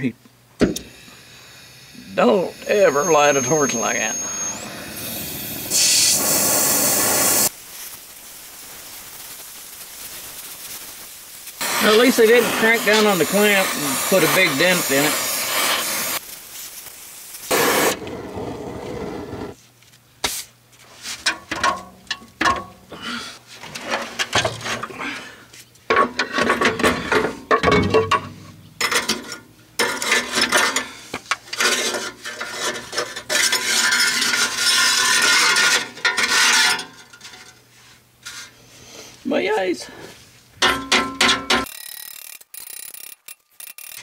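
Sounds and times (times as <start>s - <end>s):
gas torch hissing: 0.8s - 19.6s
metal scraping and knocking: 31.4s - 37.6s
ratchet wrench clicking: 41.6s - 44.0s.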